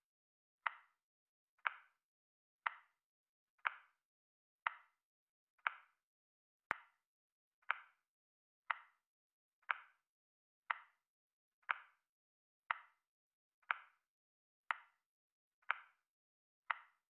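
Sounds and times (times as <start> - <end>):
clock-like ticks: 0.6 - 1.0, 1.6 - 2.0, 2.6 - 3.0, 3.6 - 4.0, 4.6 - 5.0, 5.6 - 6.0, 6.7 - 7.0, 7.6 - 8.0, 8.7 - 9.0, 9.6 - 10.0, 10.7 - 11.0, 11.6 - 12.0, 12.7 - 13.0, 13.6 - 14.0, 14.7 - 15.0, 15.6 - 16.0, 16.7 - 17.0.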